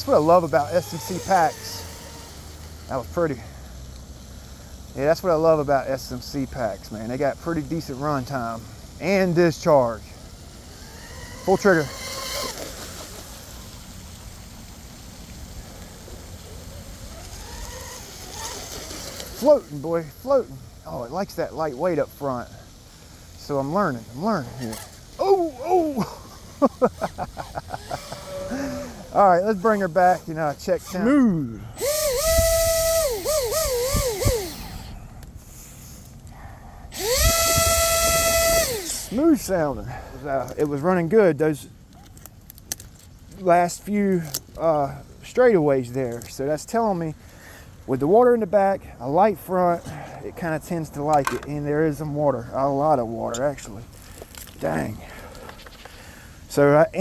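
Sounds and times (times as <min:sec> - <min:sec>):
electric motor whining: 0:00.0 - 0:03.2, 0:10.2 - 0:14.8, 0:15.6 - 0:20.0, 0:27.6 - 0:30.0, 0:31.8 - 0:35.0, 0:36.9 - 0:39.2
fountain water splashing: 0:00.0 - 0:22.3.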